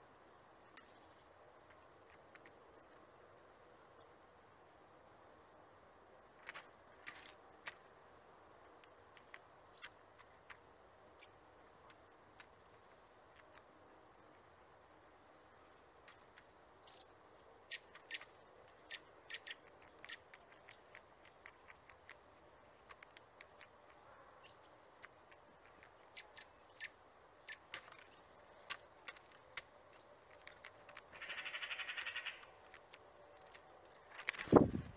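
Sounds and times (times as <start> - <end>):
bird pecking at seeds and nuts: 0.5 - 4.2, 6.3 - 34.9
fast bird rattle: 17.7 - 23.9, 27.5 - 34.9.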